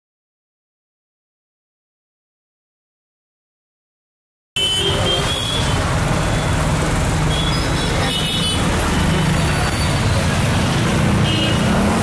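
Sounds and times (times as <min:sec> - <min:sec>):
passing traffic: 0:04.6 - 0:12.0.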